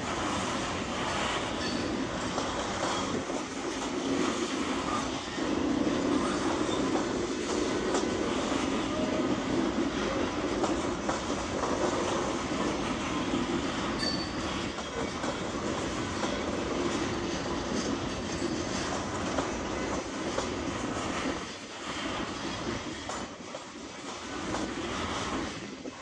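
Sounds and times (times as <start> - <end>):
train wheels clattering over rail joints: 0.0 - 26.0
high wheel squeal: 1.1 - 2.0, 14.0 - 14.7.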